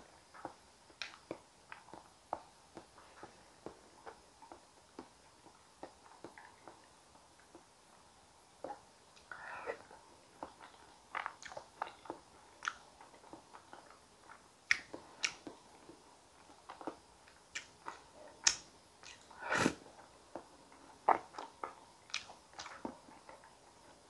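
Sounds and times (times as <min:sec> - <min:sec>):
wet chewing mouth sounds: 0:08.6 - 0:19.3, 0:20.0 - 0:24.0.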